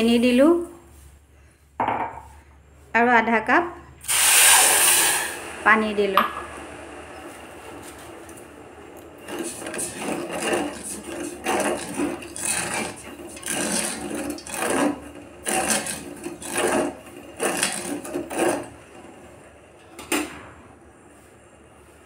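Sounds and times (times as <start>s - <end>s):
spoon scraping sugar in saucepan: 9.2s - 18.8s.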